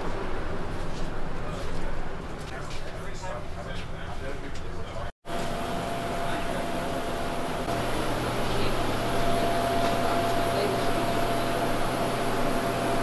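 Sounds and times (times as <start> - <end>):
air-handling machine whirring: 5.3 - 13.0.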